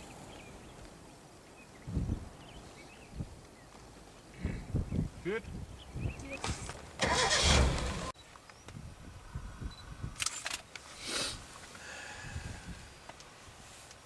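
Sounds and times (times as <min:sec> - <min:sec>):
faint outdoor background: 0:00.0 - 0:14.0
camera handling rustle and rumble: 0:10.2 - 0:11.0.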